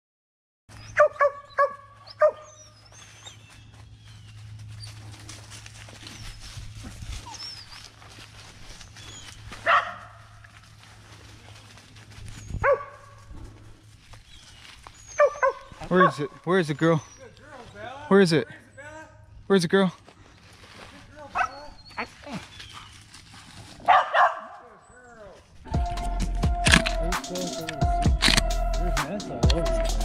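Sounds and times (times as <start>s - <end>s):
dog barking: 0.9s - 2.6s, 9.6s - 10.3s, 12.6s - 13.2s, 15.2s - 16.3s, 21.3s - 21.7s, 23.8s - 24.7s.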